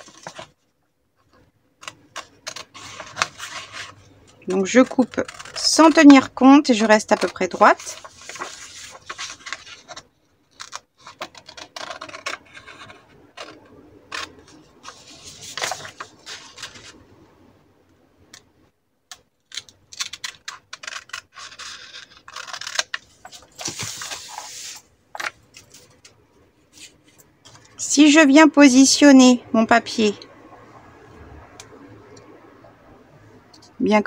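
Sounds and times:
paper rustling: 0.0s - 0.6s, 1.2s - 17.0s, 19.5s - 27.8s
scissors cutting paper: 1.8s - 6.2s, 10.6s - 16.8s, 19.5s - 23.0s.

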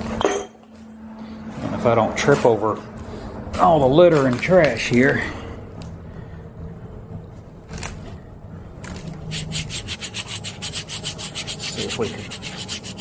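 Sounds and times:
hand rubbing rusty metal plate: 9.2s - 13.0s.

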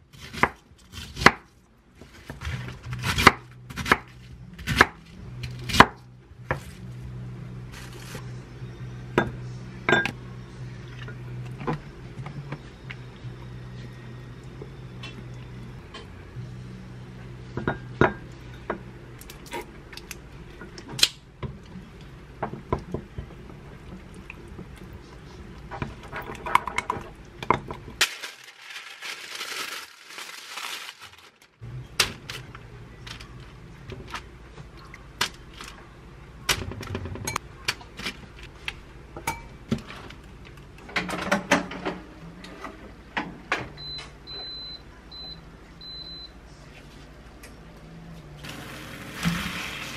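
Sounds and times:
paper rustling: 28.0s - 31.6s.

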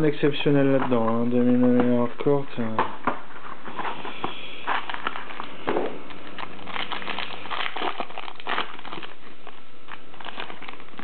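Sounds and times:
foil wrapper crinkling: 0.5s - 11.0s
foil wrapper tearing: 3.7s - 11.0s.

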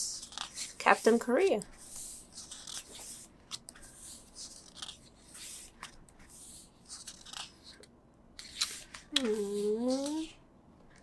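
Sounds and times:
book pages turning: 0.0s - 10.3s.

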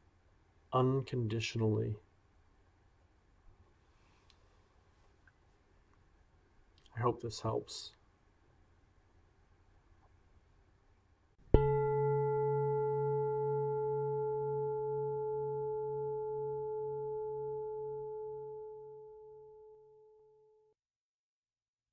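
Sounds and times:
meditation bell ringing: 11.6s - 20.2s.

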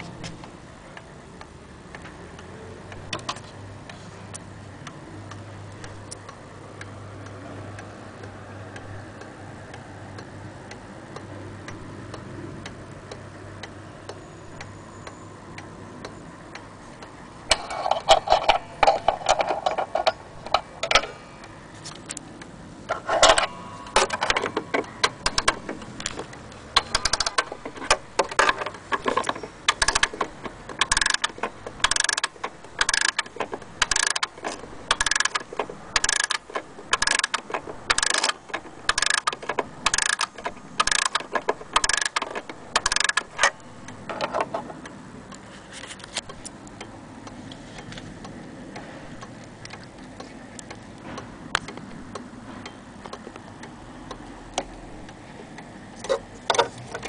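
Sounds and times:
clock ratchet clicking: 23.0s - 45.0s
wall clock ticking: 23.4s - 44.1s.

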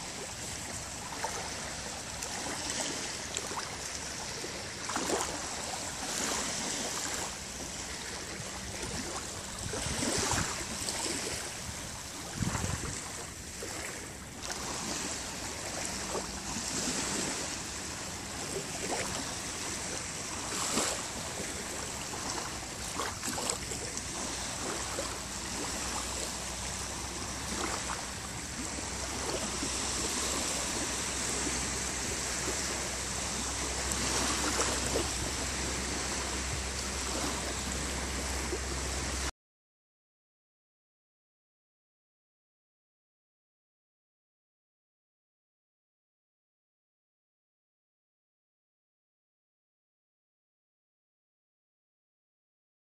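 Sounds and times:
small waves lapping on sand: 0.0s - 39.3s.

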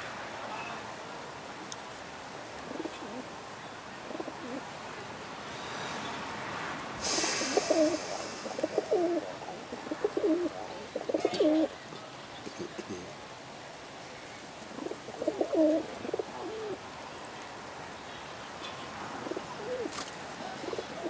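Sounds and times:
pigeons cooing: 2.6s - 3.3s, 4.0s - 4.7s, 7.2s - 11.8s, 14.7s - 16.8s, 19.2s - 21.0s
steady hiss: 6.9s - 10.8s.

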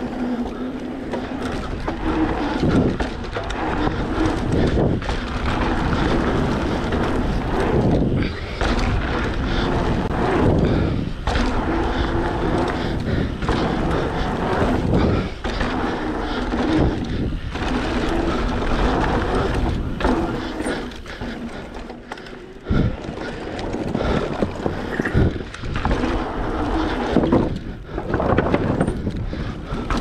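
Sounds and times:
bike landings: 0.0s - 30.0s
bike rattling: 0.0s - 30.0s
bike tyres rolling over dirt: 0.0s - 30.0s
wind rushing over microphone: 0.9s - 21.5s, 22.6s - 30.0s.

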